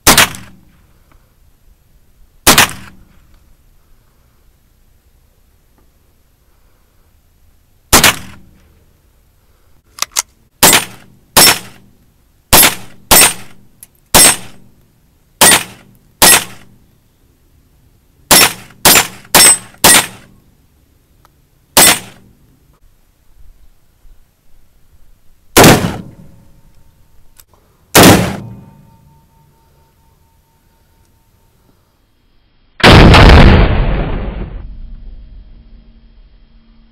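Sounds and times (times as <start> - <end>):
rifle shots hitting steel target: 0.0 - 0.6, 2.4 - 3.0, 7.9 - 8.5, 10.6 - 11.9, 12.5 - 14.6, 15.4 - 16.7, 18.3 - 20.3, 21.8 - 22.3, 25.6 - 26.5, 27.9 - 28.9.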